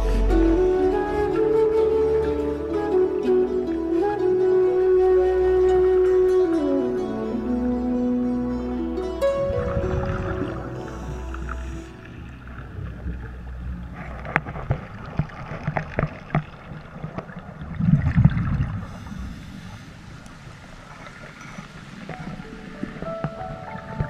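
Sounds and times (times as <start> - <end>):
sharp underwater clicks and knocks: 13.9 - 18.6.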